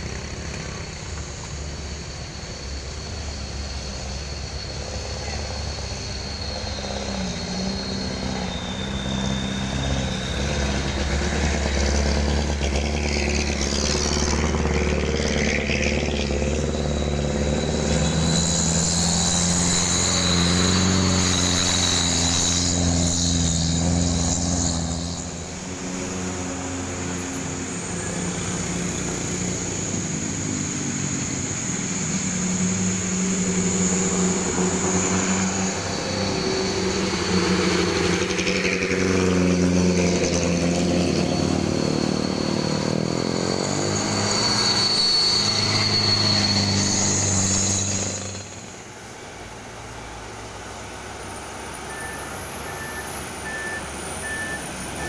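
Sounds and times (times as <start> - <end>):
buses and trucks passing: 0.0 - 55.0
diesel engine high whine: 0.0 - 55.0
repeated beeping: 51.9 - 55.0.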